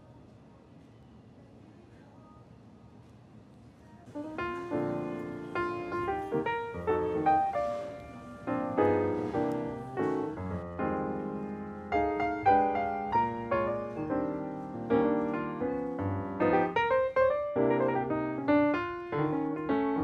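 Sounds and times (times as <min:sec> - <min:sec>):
piano music: 0:04.2 - 0:20.0.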